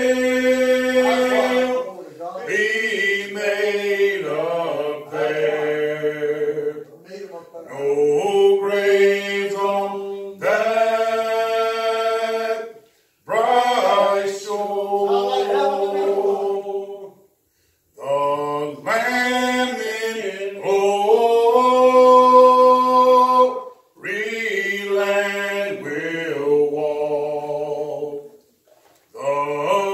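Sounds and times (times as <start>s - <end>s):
hymn singing: 0.0s - 29.9s.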